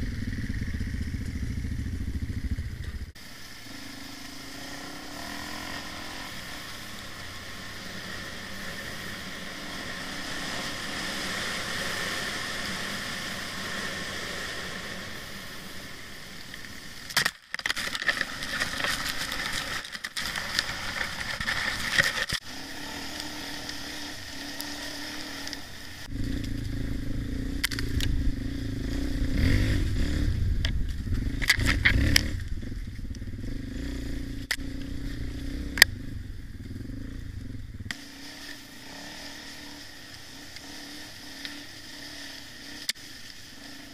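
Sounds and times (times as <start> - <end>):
dirt bike engine running: 0.0 - 17.1, 17.8 - 43.9
crackles and knocks from brush: 17.1 - 22.4.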